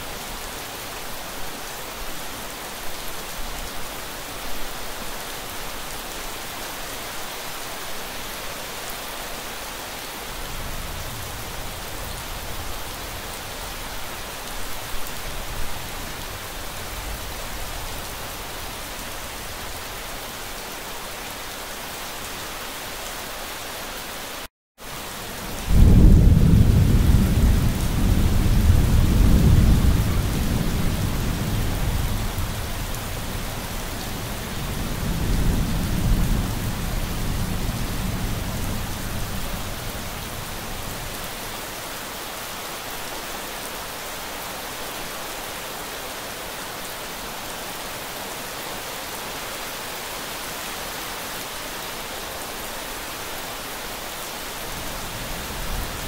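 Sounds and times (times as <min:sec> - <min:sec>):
steady rain: 0:00.0 - 0:56.0
rolling thunder rumble: 0:25.5 - 0:40.2.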